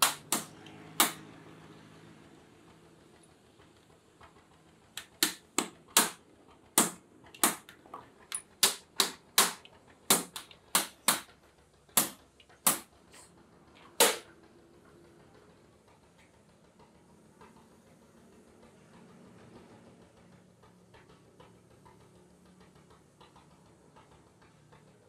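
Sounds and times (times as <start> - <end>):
hammer striking rivets: 0.0 - 1.2, 5.0 - 6.2, 6.8 - 11.3, 11.9 - 12.9, 13.9 - 14.3.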